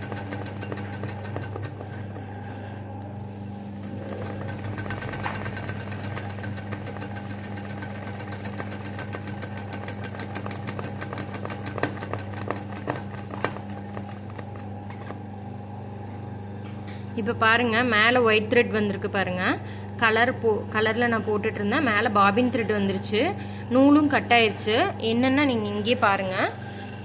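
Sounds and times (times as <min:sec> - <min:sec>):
sewing machine clicks: 0:00.0 - 0:02.2, 0:04.0 - 0:13.6
sewing machine running: 0:00.0 - 0:15.0.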